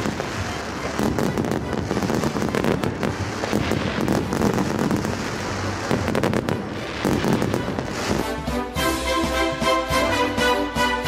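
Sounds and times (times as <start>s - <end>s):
fireworks bangs and crackles: 0.0s - 9.5s.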